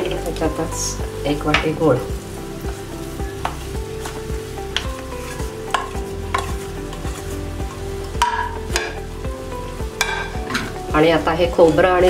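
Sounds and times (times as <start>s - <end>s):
low sizzle from pan: 0.0s - 12.0s
metal spatula tapping and scraping: 3.4s - 7.4s, 8.0s - 9.0s, 10.0s - 10.8s.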